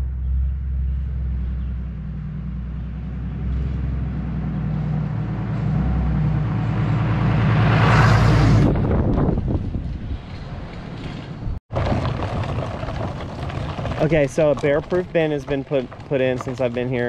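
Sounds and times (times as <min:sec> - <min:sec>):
truck engine rumble: 0:00.0 - 0:17.0
tyres on gravel: 0:09.8 - 0:17.0.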